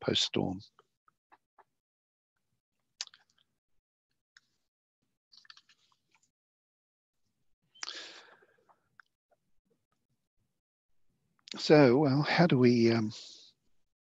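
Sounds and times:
mouth clicks and lip noises: 3.0 - 3.5, 5.4 - 6.3
intake of breath: 7.8 - 8.7.

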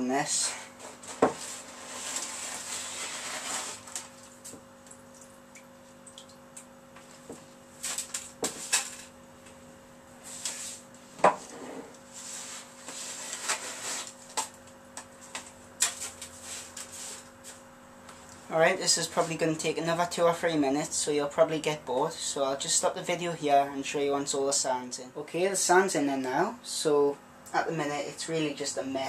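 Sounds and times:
hand scraping wet sand: 1.4 - 3.9.

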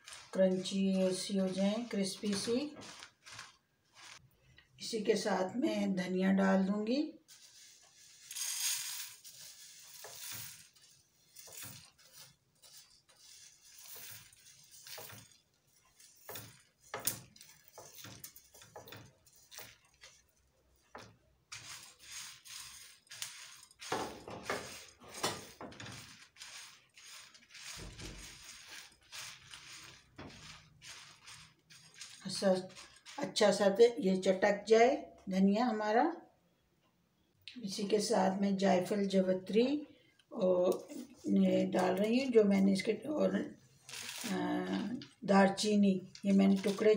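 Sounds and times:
spatula stirring dry spices: 0.0 - 4.4, 7.3 - 33.8, 45.6 - 46.9
seeds pattering into a pan: 7.6 - 33.4
spoon scraping plate and pan: 8.1 - 20.3, 20.9 - 33.2.

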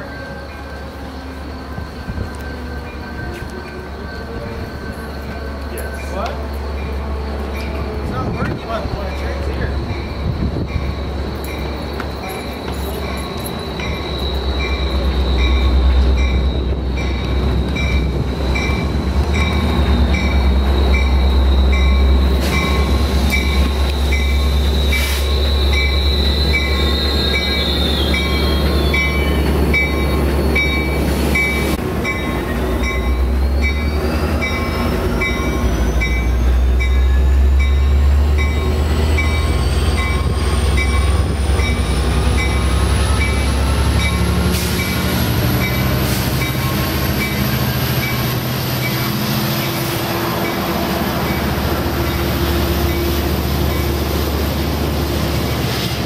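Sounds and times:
diesel locomotive engine rumble: 0.0 - 56.0
wheel squeal: 8.8 - 18.8, 19.4 - 31.5.

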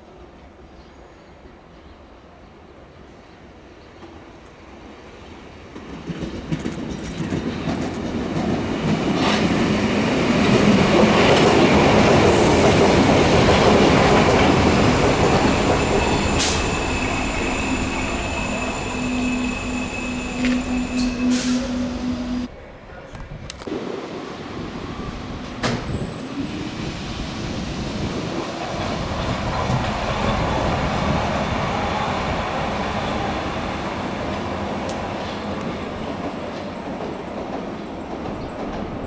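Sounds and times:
train rumbling on rails: 4.0 - 22.6, 23.6 - 39.0
high-pitched wheel squeal: 15.3 - 22.5.

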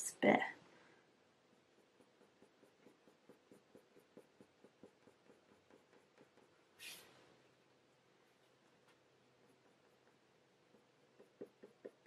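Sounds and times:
pencil scratching on paper: 1.4 - 7.1, 9.3 - 12.0.

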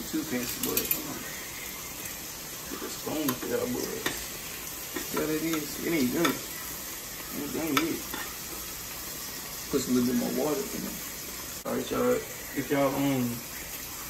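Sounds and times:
bacon sizzling in a frying pan: 0.0 - 14.0
metal cutlery clinks: 0.4 - 1.1.

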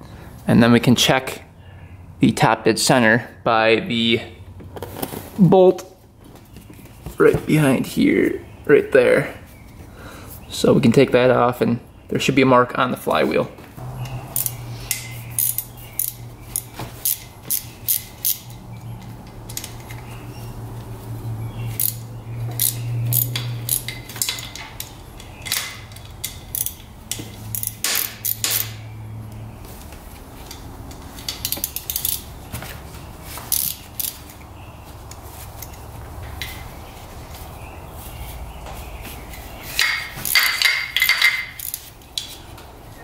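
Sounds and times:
ratchet wrench clicking: 14.0 - 20.0, 21.7 - 28.8, 30.5 - 32.3, 33.5 - 34.3, 39.7 - 42.3.

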